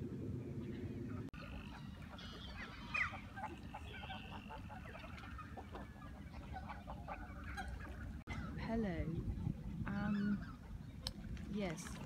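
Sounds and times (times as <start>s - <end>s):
low rumble: 0.0s - 4.0s
waterfowl calling: 0.6s - 8.7s, 9.6s - 11.2s.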